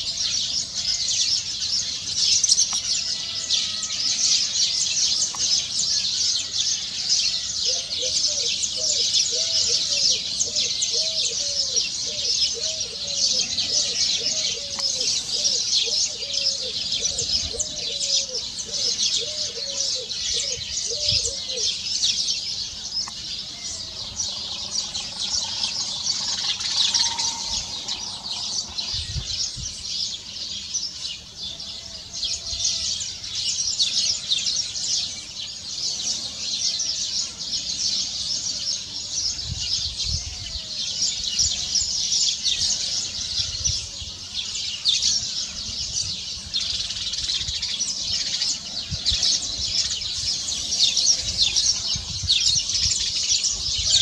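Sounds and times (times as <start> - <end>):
lower arching bird calls: 0.0 - 35.4.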